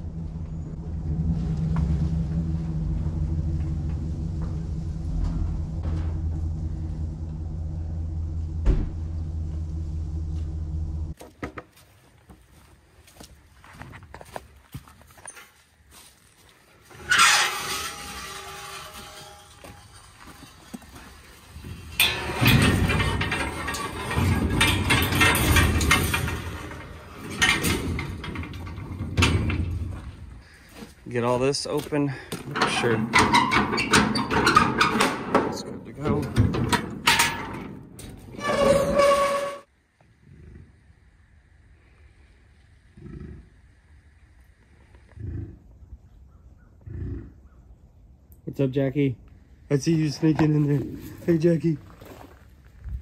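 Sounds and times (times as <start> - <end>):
trailer rattling: 0.0 - 11.2, 16.9 - 39.7
truck engine idling: 0.0 - 11.2
metallic clank: 0.3 - 11.2, 16.9 - 30.4, 32.5 - 39.7.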